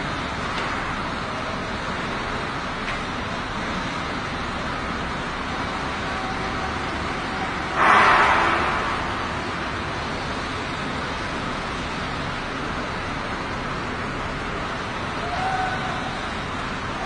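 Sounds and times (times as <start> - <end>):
sudden rush of noise: 7.6 - 11.6.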